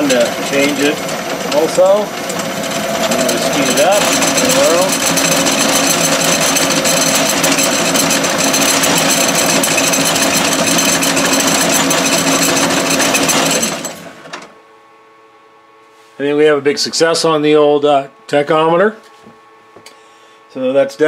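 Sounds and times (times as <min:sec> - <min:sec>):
metal lathe running: 0:00.0 - 0:14.5
steady motor hum: 0:00.0 - 0:21.0.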